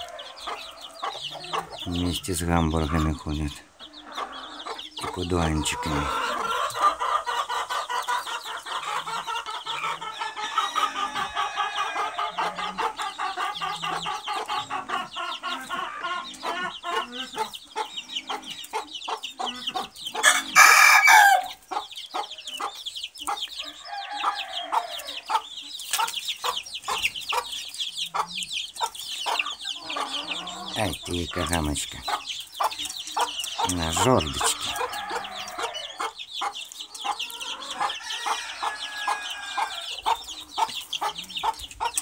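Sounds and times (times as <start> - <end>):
chickens clucking: 0.0 - 42.0
rooster crowing: 10.1 - 12.6, 20.2 - 21.6, 23.6 - 25.3, 34.2 - 36.0, 37.4 - 40.2.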